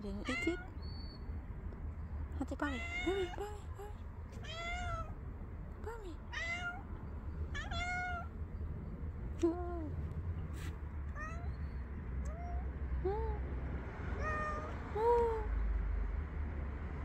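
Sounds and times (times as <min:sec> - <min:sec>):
cat meowing: 0:00.2 - 0:00.8, 0:02.6 - 0:03.5, 0:04.4 - 0:05.2, 0:06.2 - 0:06.9, 0:07.5 - 0:08.3, 0:11.1 - 0:11.6, 0:12.2 - 0:12.7, 0:14.2 - 0:15.5.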